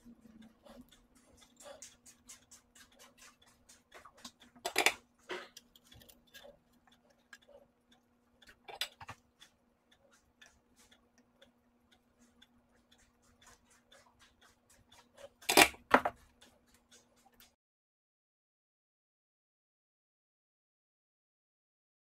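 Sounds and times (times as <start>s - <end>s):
plastic case clicks and ticking: 4.2s - 5.0s, 15.4s - 16.2s.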